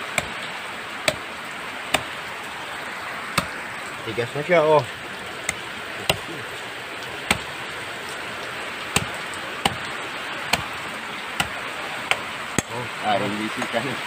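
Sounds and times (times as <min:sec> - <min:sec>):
rain hissing: 0:00.0 - 0:14.0
machete chopping coconut husk: 0:00.1 - 0:00.4, 0:01.0 - 0:01.3, 0:01.9 - 0:02.2, 0:03.3 - 0:03.6, 0:05.4 - 0:06.4, 0:07.2 - 0:07.6, 0:08.9 - 0:09.9, 0:10.5 - 0:10.8, 0:11.4 - 0:12.8.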